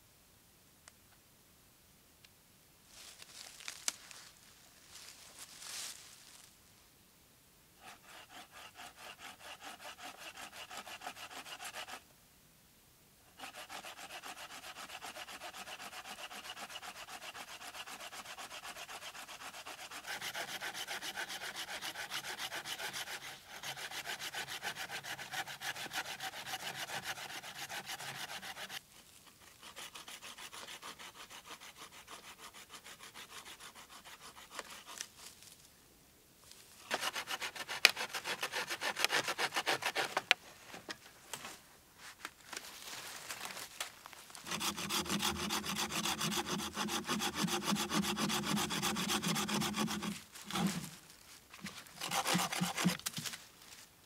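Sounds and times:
hand saw cutting branch: 0:07.8 - 0:12.0, 0:13.3 - 0:35.3, 0:36.8 - 0:40.4, 0:44.4 - 0:51.0, 0:51.6 - 0:53.4.

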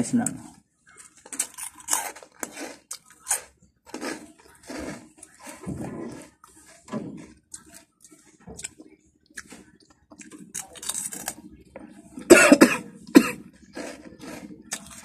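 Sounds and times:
mouth and chewing noises: 0:01.0 - 0:06.6, 0:07.2 - 0:11.9, 0:13.6 - 0:15.0
man coughing: 0:12.3 - 0:13.4.

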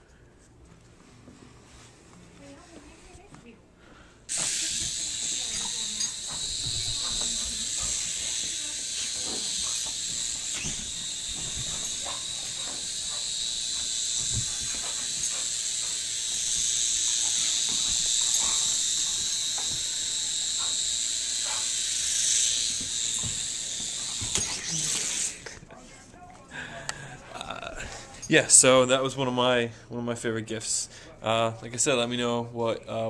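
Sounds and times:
toy helicopter motor whine: 0:04.3 - 0:25.5.

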